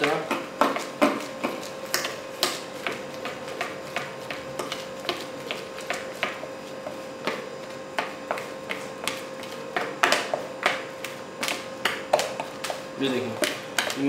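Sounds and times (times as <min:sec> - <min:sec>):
spice powder tapping plastic tub: 0:08.0 - 0:14.0.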